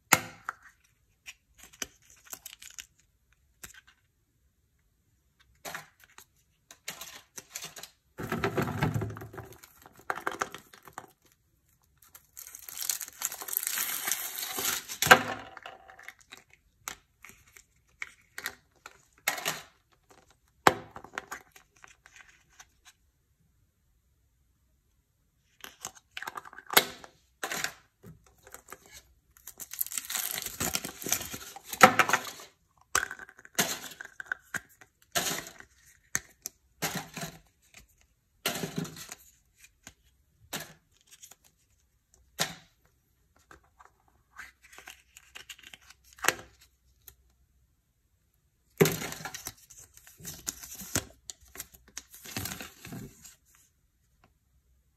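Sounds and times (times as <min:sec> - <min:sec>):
foil wrapper crinkling: 0:12.1 - 0:14.8, 0:29.5 - 0:31.4.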